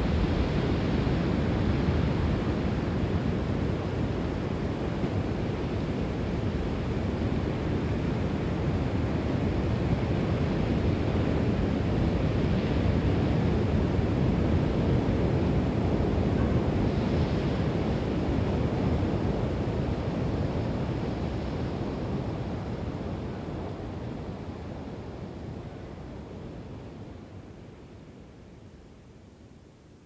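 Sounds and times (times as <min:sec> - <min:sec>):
low rushing noise: 0:00.0 - 0:02.4.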